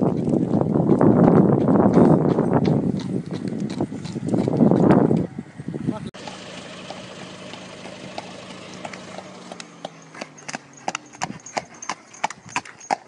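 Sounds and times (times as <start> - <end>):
horse hooves clopping on asphalt: 0.0 - 5.4, 6.2 - 13.0
engine running: 5.5 - 13.0.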